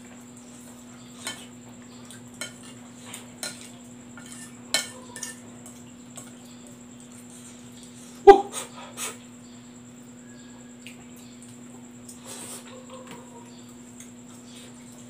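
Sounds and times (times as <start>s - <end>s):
cutlery clinking on glass plate: 2.4s - 2.8s, 3.4s - 5.4s.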